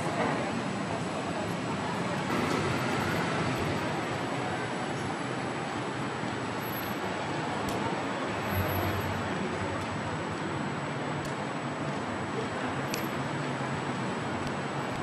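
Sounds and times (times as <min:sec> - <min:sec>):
street traffic: 0:00.0 - 0:15.0.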